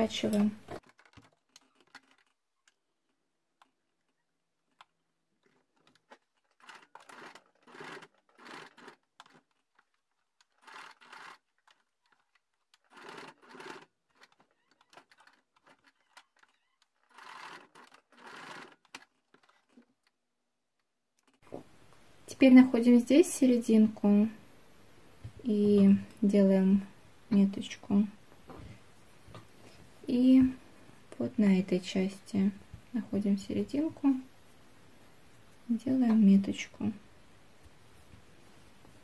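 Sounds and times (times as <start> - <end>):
sewing machine stitching: 0.0 - 2.4, 4.8 - 20.1.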